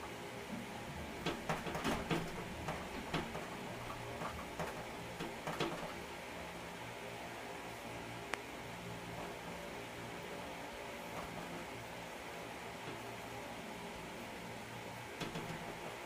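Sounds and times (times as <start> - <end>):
light clicks and taps: 15.2 - 15.8.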